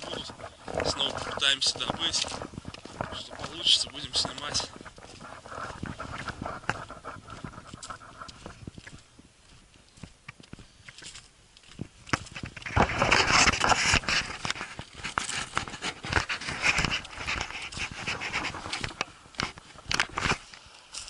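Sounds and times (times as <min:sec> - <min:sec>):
panting breaths: 0:00.0 - 0:09.1
footsteps on frozen ground: 0:00.0 - 0:21.0.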